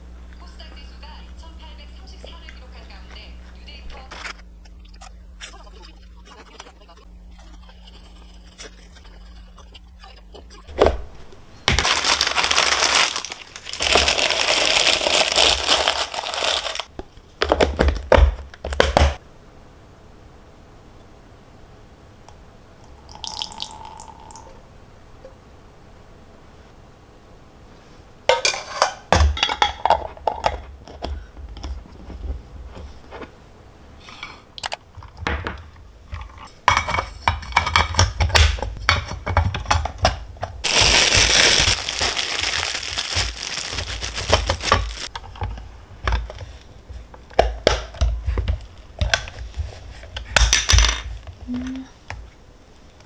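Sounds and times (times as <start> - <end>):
plastic packaging crinkling: 11.6 - 16.9, 40.5 - 45.2.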